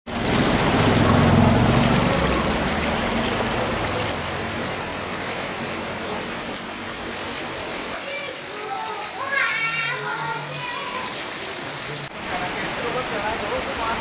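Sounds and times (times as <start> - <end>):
water splashing and rushing: 0.1 - 14.0.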